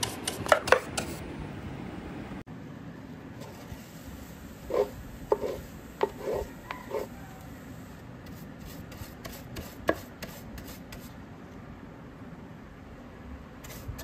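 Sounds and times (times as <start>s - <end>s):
scratchy dusting strokes: 3.4s - 11.2s.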